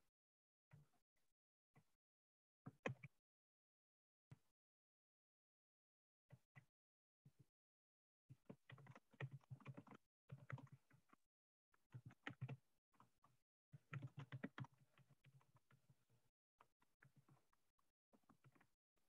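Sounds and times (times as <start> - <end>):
faint keyboard typing: 8.5 - 11.2, 11.9 - 13.1, 13.8 - 15.8, 18.2 - 18.7.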